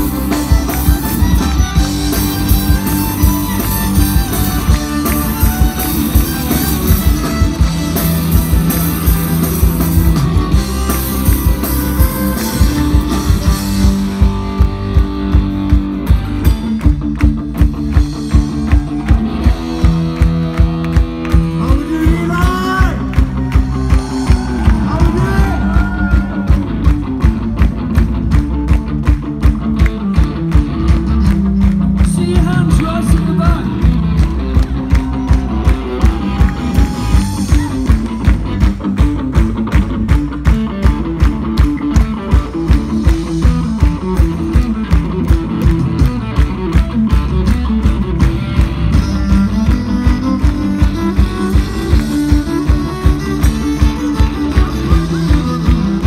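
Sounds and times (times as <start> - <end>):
guitars and bass: 0.0 - 56.0
steady drum beat: 0.0 - 56.0.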